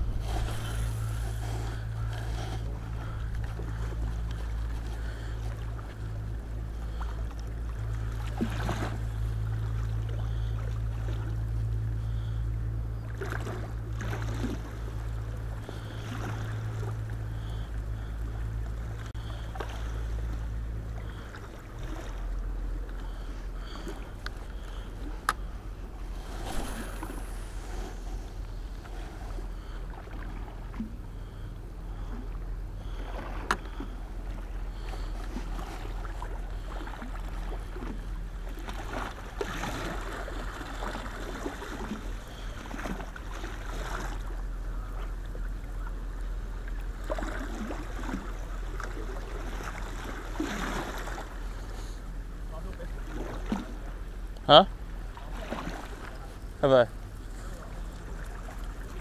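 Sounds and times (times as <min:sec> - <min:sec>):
boat engine drone: 0:00.0 - 0:59.0.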